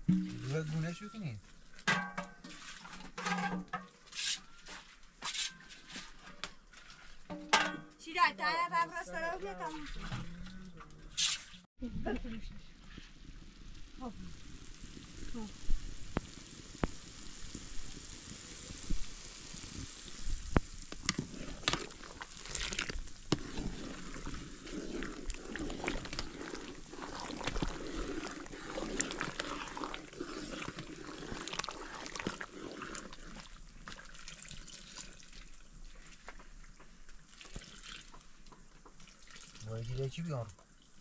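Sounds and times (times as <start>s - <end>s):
liquid trickling and splashing: 4.8s - 8.0s, 9.1s - 11.6s, 12.9s - 41.0s.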